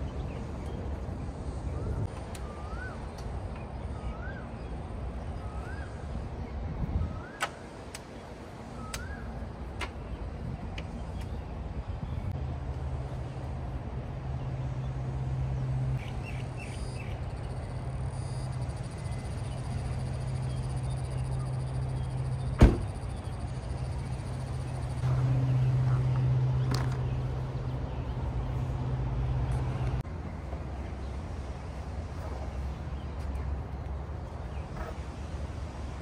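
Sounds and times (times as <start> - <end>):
car door shutting: 22.6 - 23.0.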